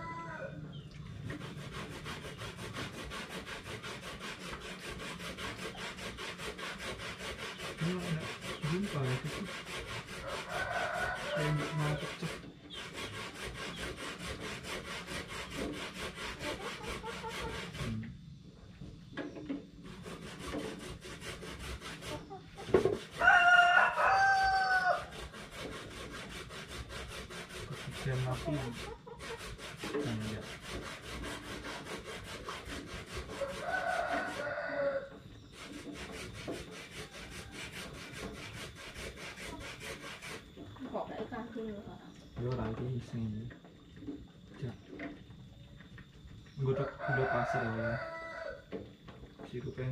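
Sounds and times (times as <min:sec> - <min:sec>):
rooster crowing: 0:00.0 - 0:00.7, 0:10.1 - 0:12.3, 0:23.1 - 0:25.2, 0:33.3 - 0:35.2, 0:46.6 - 0:48.7.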